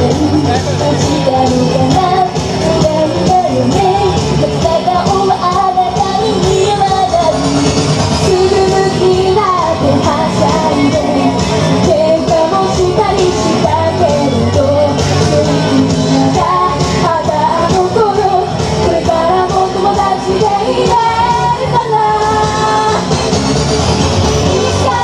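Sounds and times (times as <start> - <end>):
women singing into microphones: 0.0 - 23.1, 24.4 - 25.0
pop backing music: 0.0 - 25.0.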